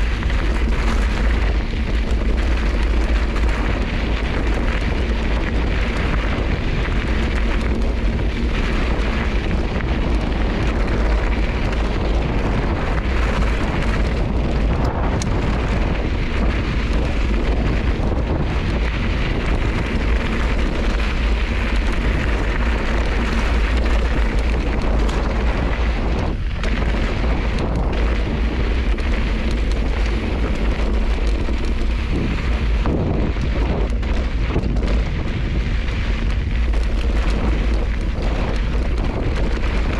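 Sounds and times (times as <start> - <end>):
bike tyres on rocky trail: 0.0 - 39.9
wind buffeting microphone: 0.0 - 39.9.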